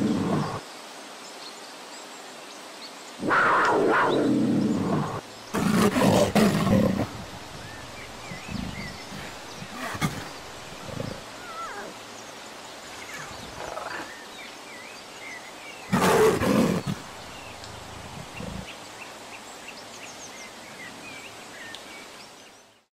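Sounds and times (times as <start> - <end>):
big cat growling: 0.0 - 0.6, 3.2 - 11.9, 15.9 - 18.7
big cat roaring: 0.0 - 0.6, 3.2 - 11.9, 15.9 - 18.7.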